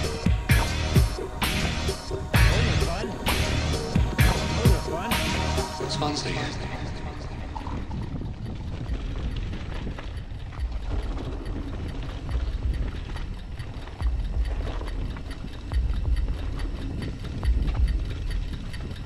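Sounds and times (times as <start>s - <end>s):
wind buffeting microphone: 0.0s - 19.0s
bike frame rattling and knocking: 7.6s - 19.0s.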